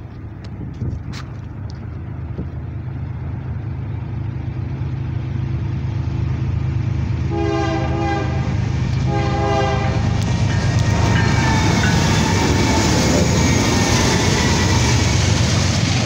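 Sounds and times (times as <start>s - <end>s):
diesel locomotive engine rumble: 0.0s - 16.0s
locomotive air horn blasts: 7.3s - 10.2s.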